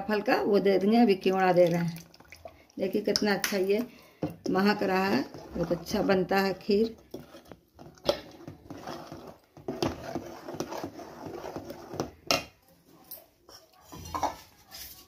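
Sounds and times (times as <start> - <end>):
spatula scraping in a pot: 4.6 - 12.3, 13.5 - 15.0.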